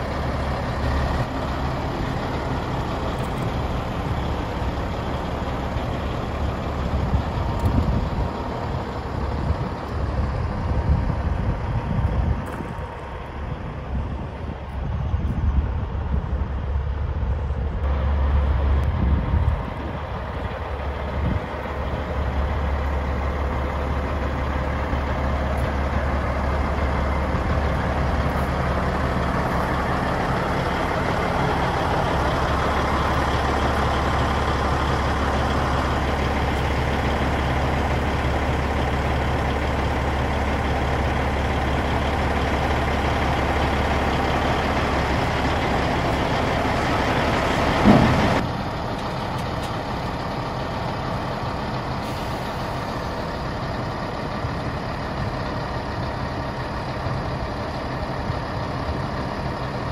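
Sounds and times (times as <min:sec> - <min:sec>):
diesel truck engine droning: 0:00.0 - 0:59.9
loud thump: 0:47.8 - 0:48.4.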